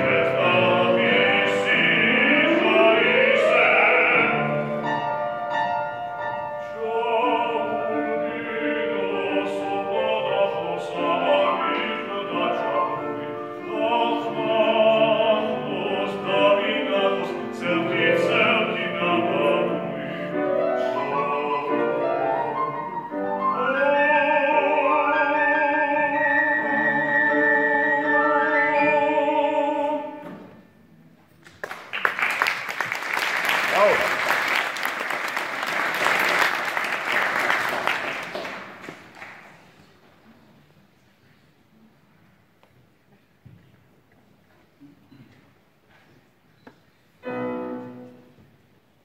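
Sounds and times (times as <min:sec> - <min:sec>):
man singing opera with vibrato: 0:00.0 - 0:05.2, 0:06.5 - 0:30.6
grand piano accompaniment: 0:00.0 - 0:40.6, 0:46.3 - 0:49.0.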